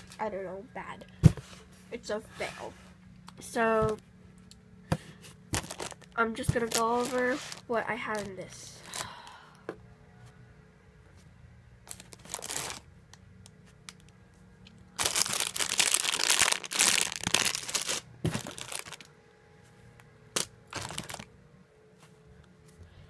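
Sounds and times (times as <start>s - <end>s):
plastic bags crinkling: 5.5s - 9.2s, 11.9s - 12.8s, 14.9s - 19.1s, 20.4s - 21.3s.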